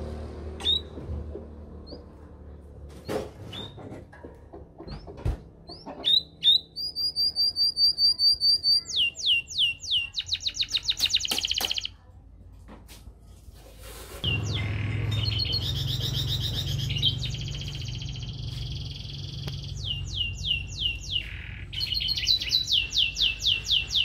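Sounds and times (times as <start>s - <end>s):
canary singing: 0.6s - 1.0s, 4.9s - 12.0s, 14.2s - 24.0s.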